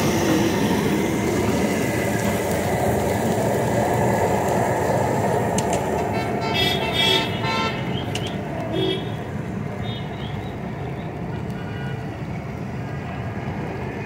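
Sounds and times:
street traffic din: 0.0s - 14.0s
vehicle horns tooting: 6.1s - 9.2s, 11.3s - 12.0s.

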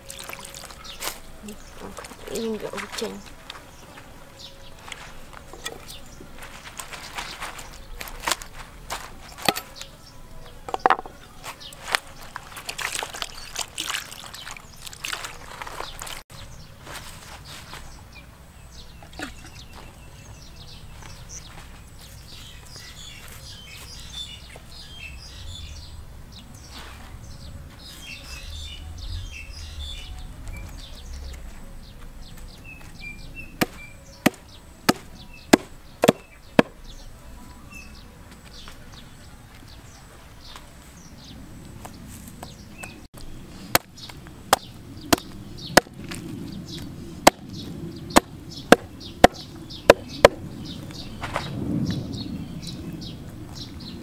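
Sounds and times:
birds chirping: 0.0s - 54.0s
knife chopping on wooden block: 33.6s - 36.8s, 48.2s - 50.4s.

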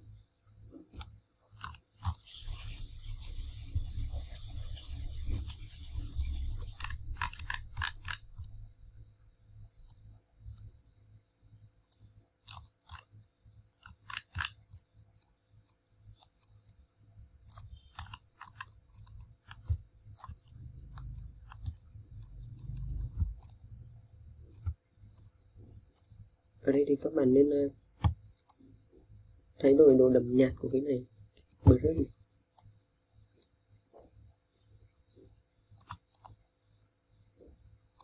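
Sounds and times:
small clicks and crackles: 0.7s - 8.7s, 11.8s - 13.2s, 13.8s - 23.8s, 35.1s - 36.5s.

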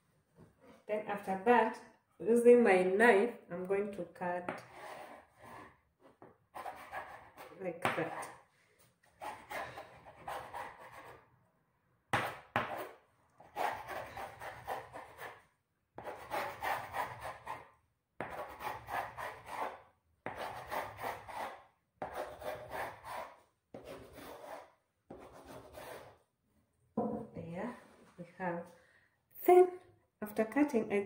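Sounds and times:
knife cutting dough on countertop: 12.1s - 15.4s, 16.0s - 26.2s.

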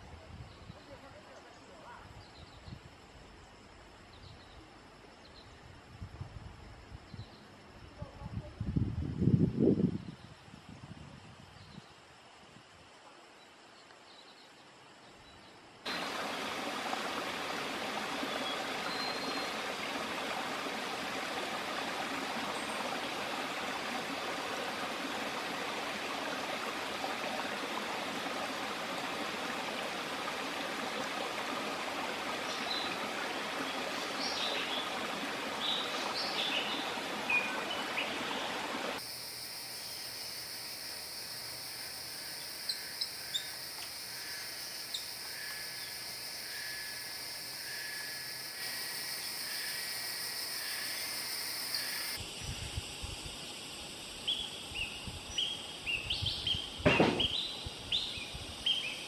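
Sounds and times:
steady hiss: 15.1s - 59.0s
stream rushing: 15.9s - 39.0s.

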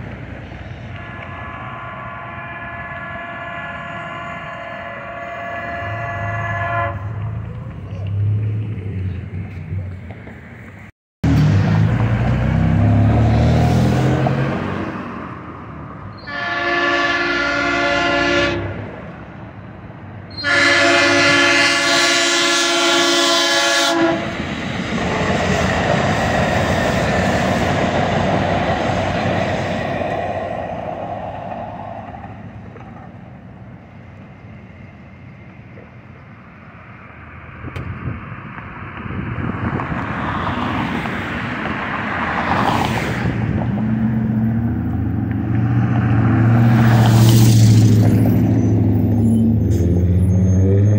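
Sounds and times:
road vehicle passing: 0.0s - 50.9s
train rail noise: 0.0s - 50.9s
train horn blasts: 0.9s - 7.4s, 16.2s - 19.0s, 20.3s - 24.4s.

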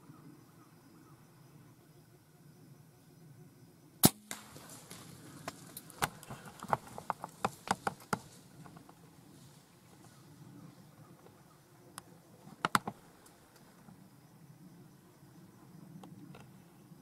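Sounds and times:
bow firing and arrow striking: 4.0s - 8.3s
deer running through dry leaves: 4.4s - 7.6s.

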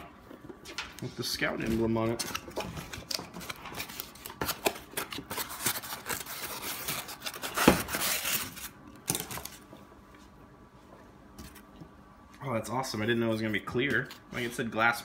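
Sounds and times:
packaging rustling: 1.8s - 9.6s.

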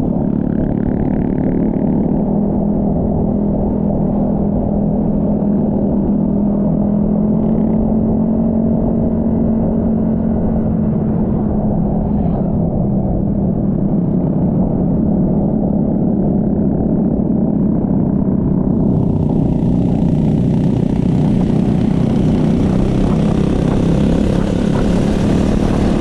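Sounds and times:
wind and road rumble: 0.0s - 26.0s
scooter engine droning: 13.1s - 26.0s.

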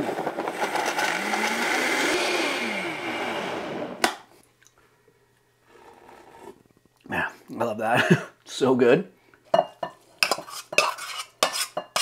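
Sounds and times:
blender motor running: 0.0s - 4.1s.

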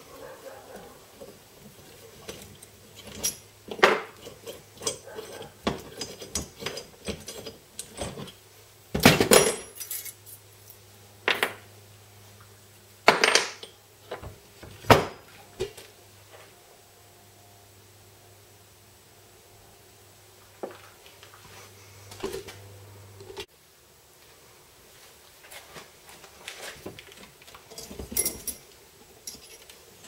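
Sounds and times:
metal tools clinking on workbench: 9.0s - 10.8s, 27.7s - 30.0s.

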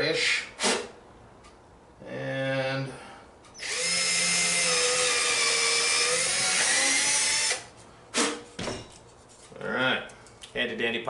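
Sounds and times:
cordless drill boring into wood: 3.6s - 7.7s.

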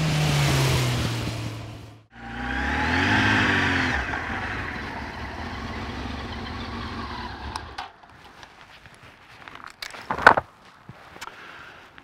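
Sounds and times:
motorcycle engine passing: 0.0s - 8.0s.

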